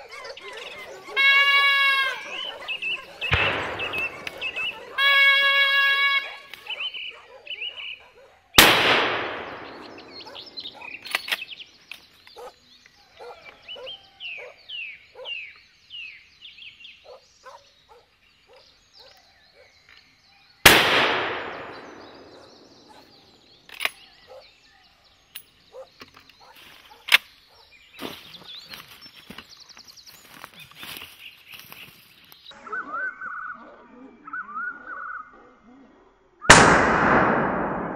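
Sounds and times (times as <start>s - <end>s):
dogs yelping and baying: 0.0s - 8.5s, 10.2s - 11.1s, 12.4s - 14.6s, 22.3s - 23.2s
rifle shots echoing: 3.1s - 5.4s, 8.6s - 11.4s, 20.7s - 23.4s, 36.5s - 37.9s.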